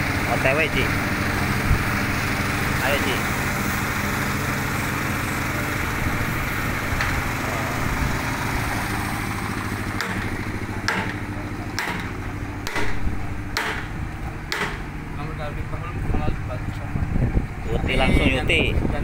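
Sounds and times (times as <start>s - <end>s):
diesel engine idling: 0.0s - 19.0s
sharp knocks: 9.9s - 14.9s.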